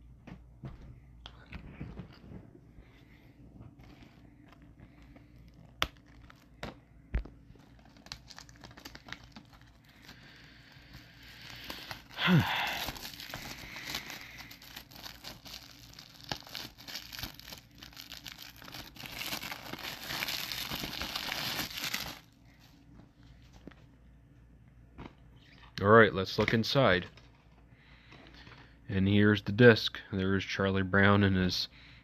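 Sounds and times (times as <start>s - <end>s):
shrink wrap crinkling: 3.7s - 22.8s
plastic wrap ripping: 5.4s - 6.7s, 7.5s - 22.3s.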